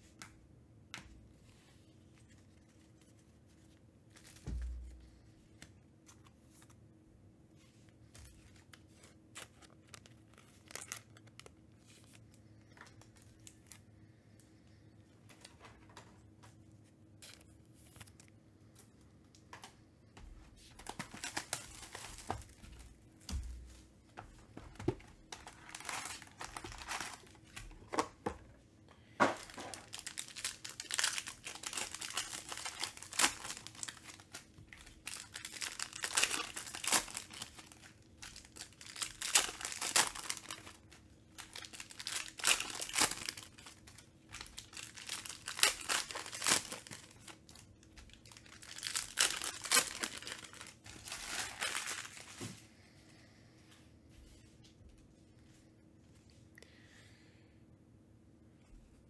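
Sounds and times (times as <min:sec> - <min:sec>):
foil wrappers crinkling and tearing: 0:08.2 - 0:13.8, 0:20.7 - 0:22.6, 0:25.2 - 0:28.1, 0:29.2 - 0:52.5.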